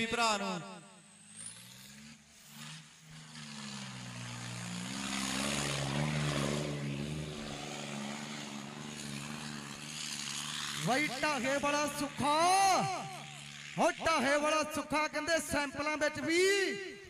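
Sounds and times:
tractor diesel engine under load: 1.1 - 14.4.

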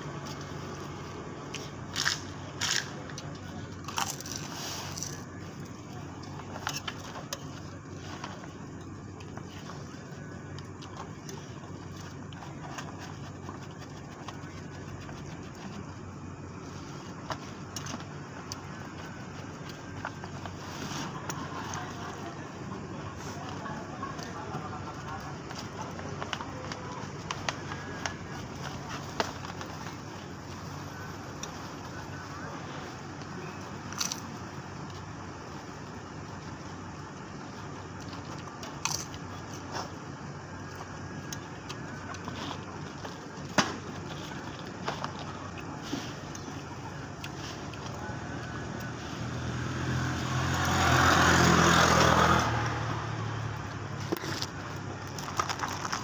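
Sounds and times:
low mechanical hum: 0.0 - 56.0.

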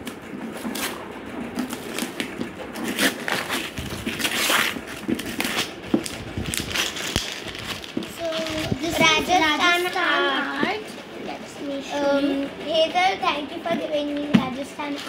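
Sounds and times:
wrapping paper ripping: 0.5 - 8.9.

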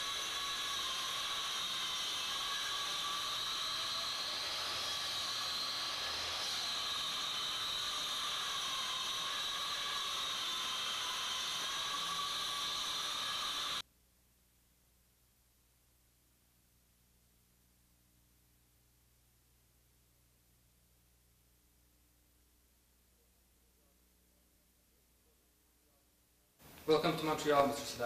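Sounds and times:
steady high hiss: 0.0 - 13.8, 26.6 - 28.0.

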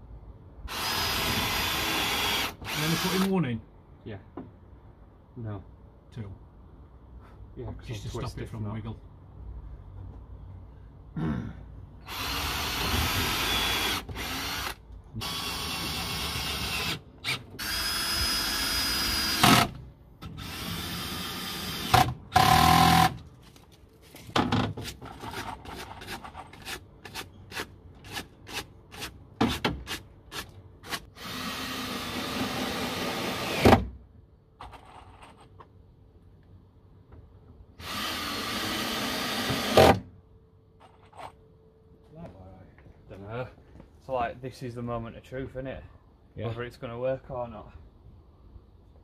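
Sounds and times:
cordless drill driving screws: 0.7 - 3.3, 12.1 - 19.7, 37.8 - 39.9.

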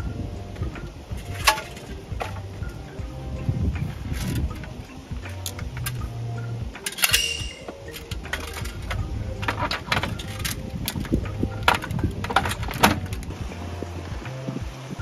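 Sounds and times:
low steady hum: 0.0 - 15.0
objects clicking and knocking: 1.2 - 2.5, 6.8 - 13.3.

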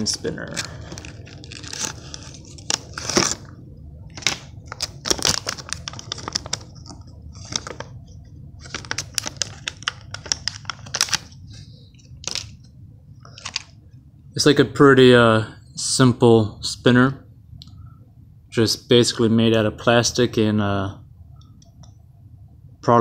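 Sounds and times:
plastic packaging crinkling: 0.0 - 13.8.

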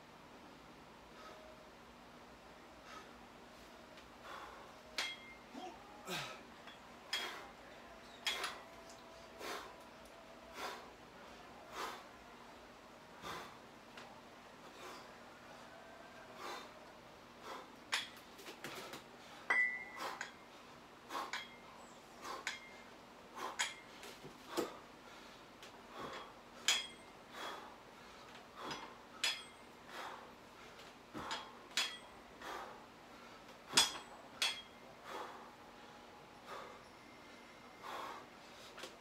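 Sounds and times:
dumbbell plates clinking: 5.0 - 5.5, 6.1 - 7.4, 8.2 - 9.0, 17.9 - 18.3, 19.5 - 20.5, 21.2 - 24.7, 26.0 - 27.2, 28.6 - 29.8, 31.2 - 32.2, 33.7 - 35.3.

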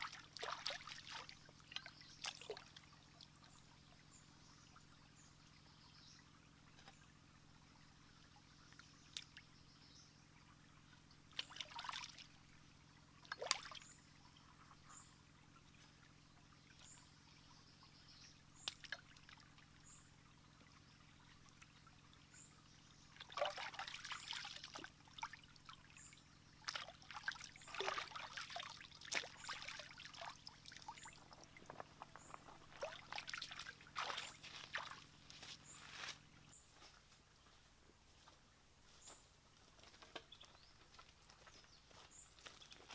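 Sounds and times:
stream water splashing: 0.0 - 4.2, 11.2 - 12.6, 13.2 - 14.6, 18.5 - 36.4.

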